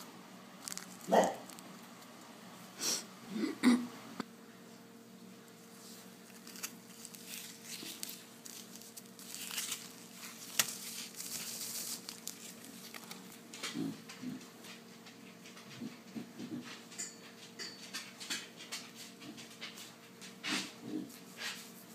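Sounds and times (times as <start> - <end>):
plastic bag crinkling: 0.6 - 2.1, 5.8 - 13.6.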